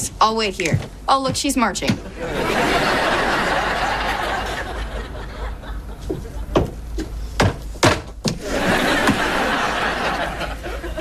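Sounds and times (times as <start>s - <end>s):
audience chuckling: 2.0s - 6.5s, 8.4s - 11.0s
sharp knocks and thumps: 6.1s - 8.4s.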